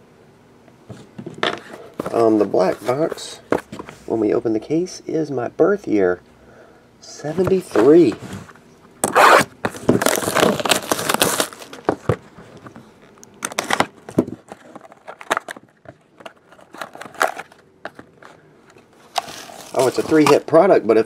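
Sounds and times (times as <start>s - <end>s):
plastic wrap crinkling: 9.8s - 12.0s, 19.0s - 20.5s.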